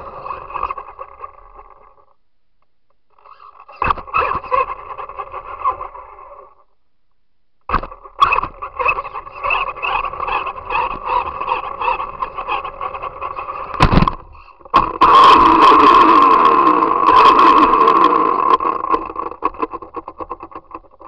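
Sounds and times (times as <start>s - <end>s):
toy car motor humming: 3.1s - 6.5s, 8.1s - 13.8s, 14.8s - 21.0s.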